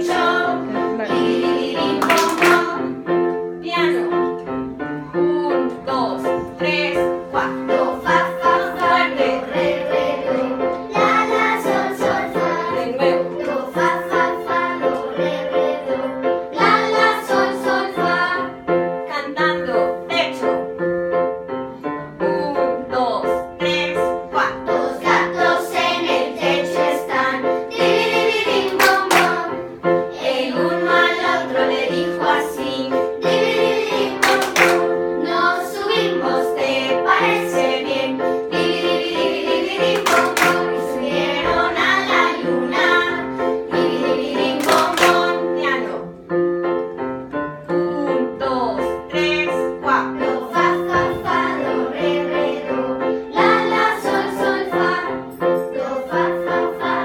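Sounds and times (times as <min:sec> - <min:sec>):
children singing in unison: 0:00.0 - 0:03.0, 0:06.8 - 0:18.6, 0:24.4 - 0:45.6, 0:49.9 - 0:57.0
hand claps: 0:01.9 - 0:02.8, 0:28.6 - 0:29.5, 0:34.2 - 0:35.0, 0:39.9 - 0:40.8, 0:44.4 - 0:45.4.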